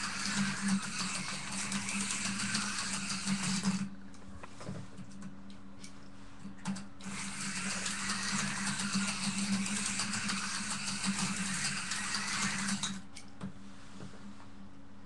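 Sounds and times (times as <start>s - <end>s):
slot car electric motor running: 0.0s - 3.9s, 7.0s - 13.0s.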